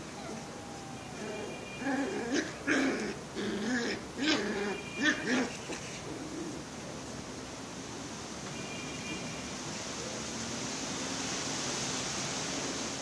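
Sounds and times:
puppies growling and yelping: 0.0s - 6.7s.

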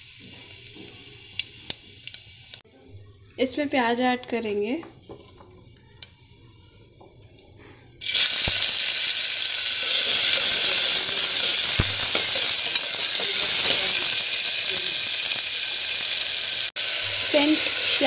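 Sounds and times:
onions sizzling in hot oil: 0.0s - 2.6s, 8.0s - 18.0s.

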